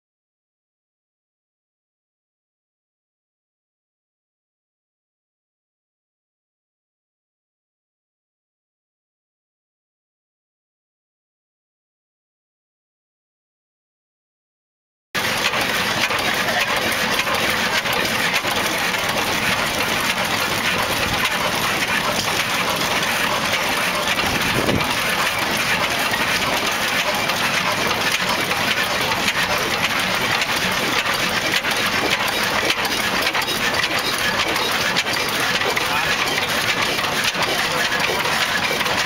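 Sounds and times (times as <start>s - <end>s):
oil engines clattering: 15.2s - 39.0s.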